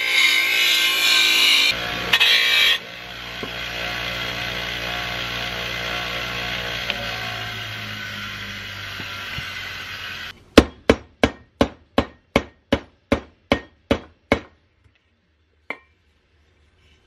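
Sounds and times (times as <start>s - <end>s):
bench grinder humming: 0.0s - 10.4s.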